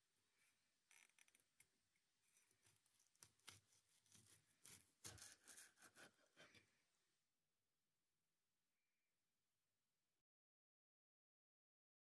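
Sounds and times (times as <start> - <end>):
knife slicing tomato crackles: 2.3 - 6.6.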